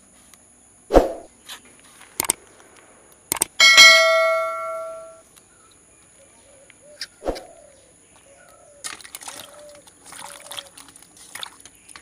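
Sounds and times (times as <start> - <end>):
light clicks: 2.1 - 3.5
metal bowl ringing: 3.6 - 5.2.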